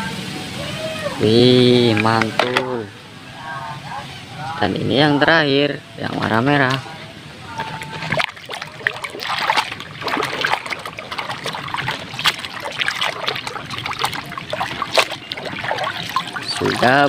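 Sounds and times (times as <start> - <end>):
water splashing and sloshing: 1.2 - 3.1, 6.2 - 17.0.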